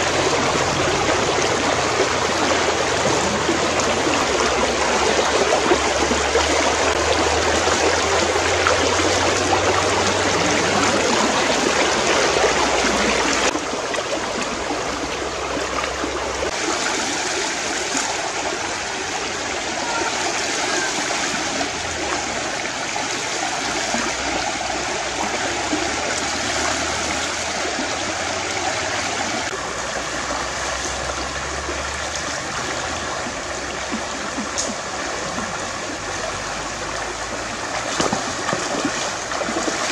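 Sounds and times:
stream babbling over rocks: 0.0s - 39.9s.

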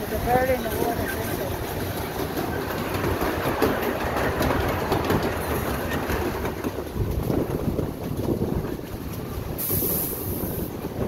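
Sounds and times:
train wheels rumbling on rails: 0.0s - 11.0s.

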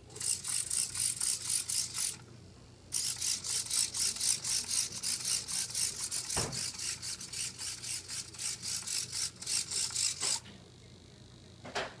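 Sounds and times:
robot servos whirring: 0.2s - 2.2s, 2.9s - 10.4s.

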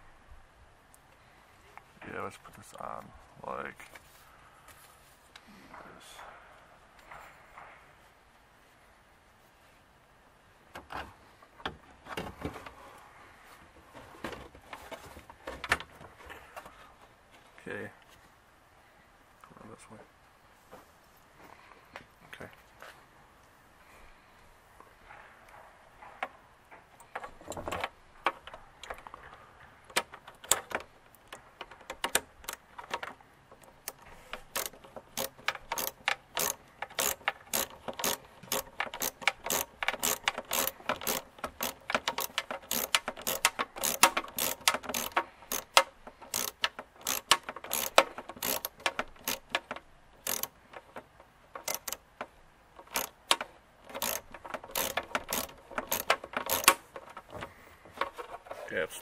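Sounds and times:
ratchet clicking: 33.6s - 52.1s, 52.8s - 57.2s.

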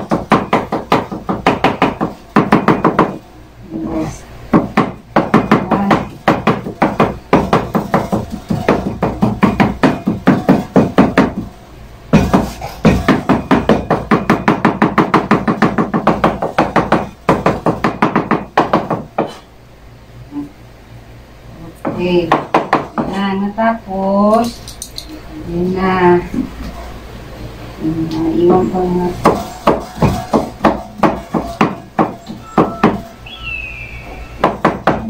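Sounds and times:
knife chopping on cutting board: 12.1s - 19.4s.

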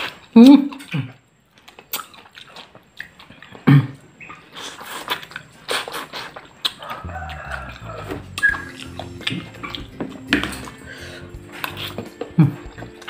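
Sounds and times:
person chewing crispy food: 0.0s - 13.0s
background music: 7.0s - 13.0s.

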